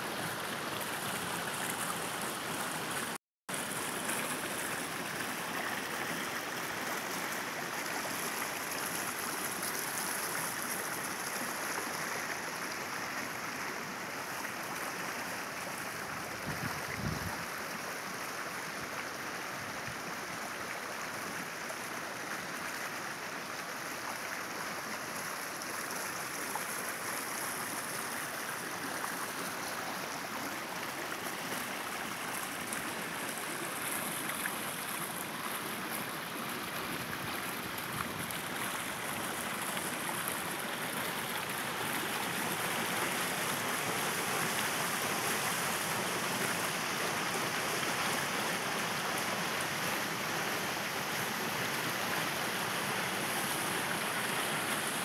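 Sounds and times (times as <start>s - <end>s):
river rushing over rock: 0.0s - 55.0s.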